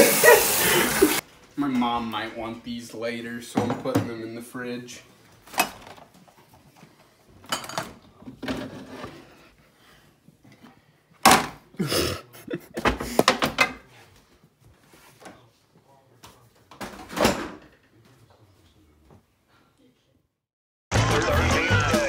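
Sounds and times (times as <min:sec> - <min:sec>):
plates and containers clattering: 0:07.4 - 0:09.4.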